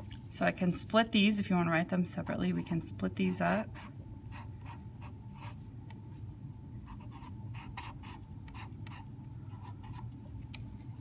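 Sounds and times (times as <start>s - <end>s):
marker pen scratching on paper: 3.5s - 5.6s, 6.9s - 10.4s.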